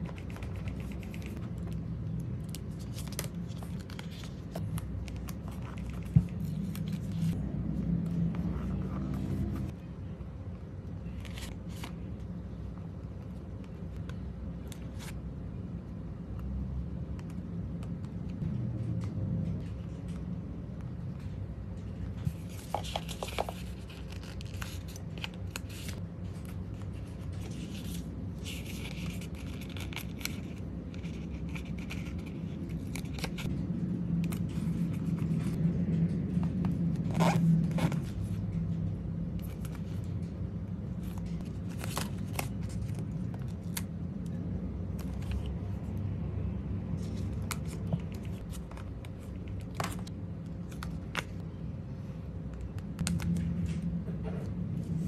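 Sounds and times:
paper rustling and rubbing: 0:00.0 - 0:01.8, 0:02.4 - 0:09.8, 0:22.2 - 0:33.5
steady low hum: 0:00.0 - 0:55.0.

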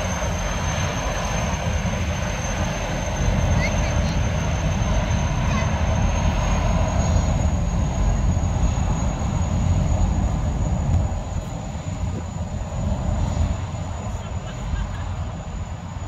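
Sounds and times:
turbine engines whining: 0:00.0 - 0:16.0.

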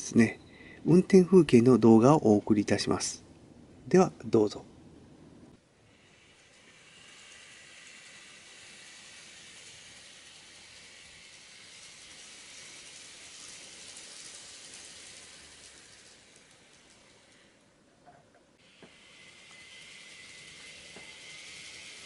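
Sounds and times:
model train hissing whir: 0:05.6 - 0:17.8, 0:18.6 - 0:22.0.

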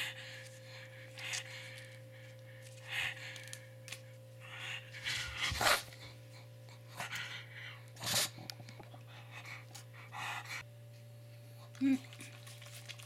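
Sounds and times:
low electrical hum: 0:00.0 - 0:13.0
dog panting: 0:04.5 - 0:10.6.

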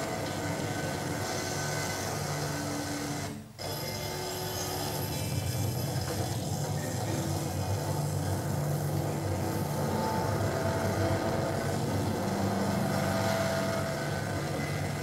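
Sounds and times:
low drone: 0:06.7 - 0:15.0.

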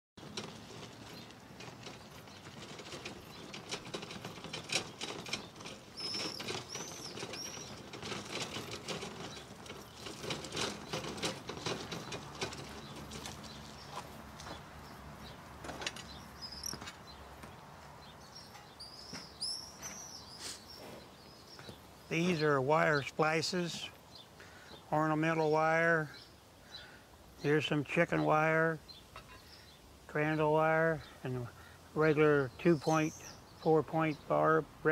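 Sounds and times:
hand truck clicking and rattling: 0:00.2 - 0:17.2
birds chirping: 0:00.2 - 0:34.9.

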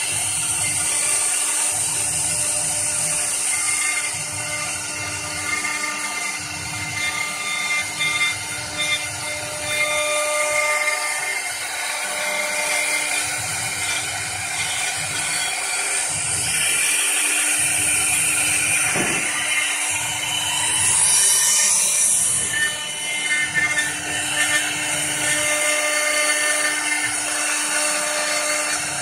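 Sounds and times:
cutter shaving spinning wood: 0:00.0 - 0:29.0
lathe motor hum: 0:00.0 - 0:29.0.

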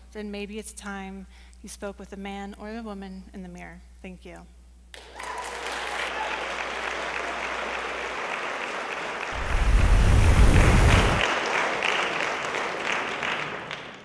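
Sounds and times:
audience applauding: 0:05.0 - 0:14.0
deep rumbling whoosh effect: 0:09.4 - 0:11.2.

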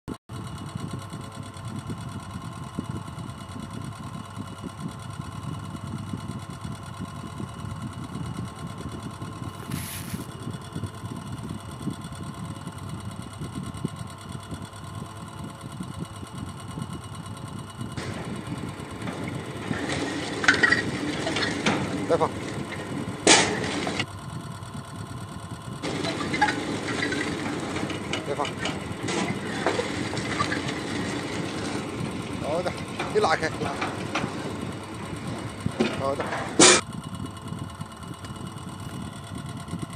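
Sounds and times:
motor running steadily: 0:00.3 - 0:39.9
sharp clatters: 0:18.0 - 0:24.1, 0:25.8 - 0:36.8.

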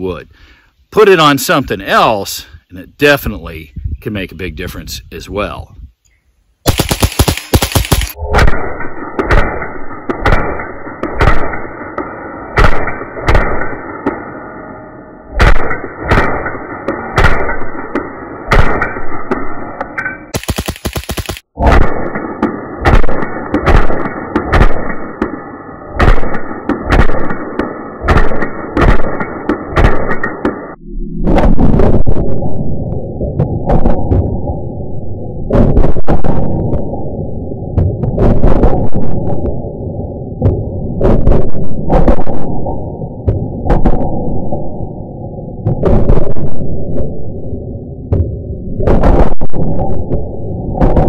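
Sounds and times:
rifle shots: 0:06.6 - 0:14.2, 0:15.4 - 0:19.7, 0:20.3 - 0:30.8, 0:48.9 - 0:49.8
slowed-down low gunshot booms: 0:06.6 - 0:14.4, 0:15.3 - 0:19.7, 0:21.4 - 0:51.0.

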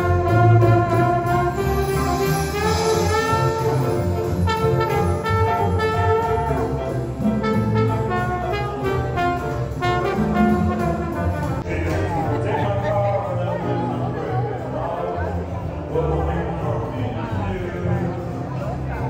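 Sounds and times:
trombone melody: 0:00.0 - 0:12.9
jazz band playing: 0:00.0 - 0:19.0.

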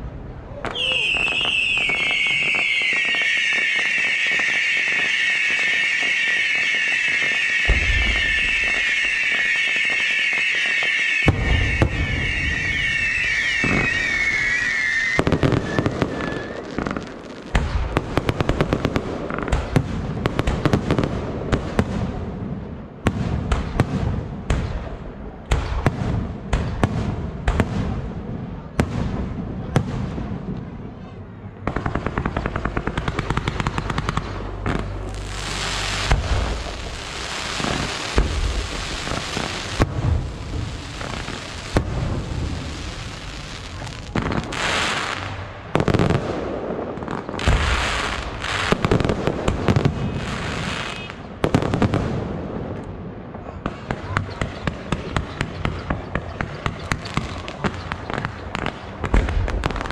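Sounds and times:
fireworks bangs and crackles: 0:00.0 - 0:59.9
firework whistles: 0:00.6 - 0:17.2, 0:32.6 - 0:46.2, 0:47.3 - 0:51.7
dense hissing crackle: 0:32.2 - 0:45.4.

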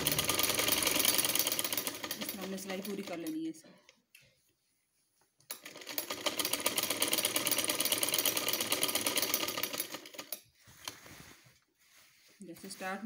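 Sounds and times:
sewing machine stitching: 0:00.0 - 0:03.4, 0:05.5 - 0:10.4.

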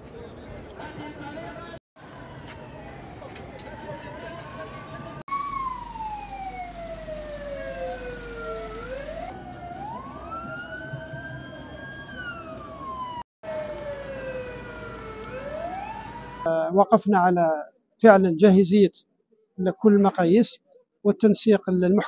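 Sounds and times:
emergency sirens wailing: 0:02.0 - 0:16.7.

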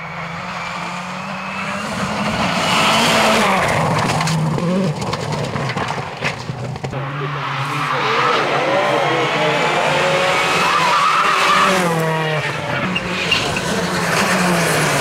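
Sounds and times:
rally car engine revving: 0:00.0 - 0:15.0
engine crackles and pops: 0:03.6 - 0:07.0.

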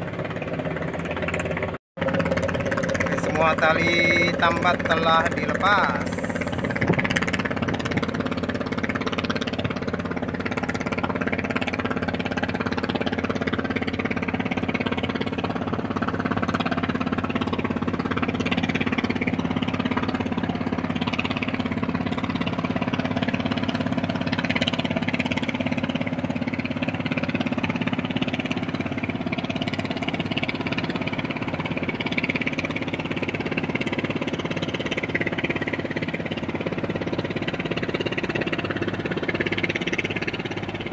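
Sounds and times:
ship diesel engines humming: 0:00.0 - 0:40.9.

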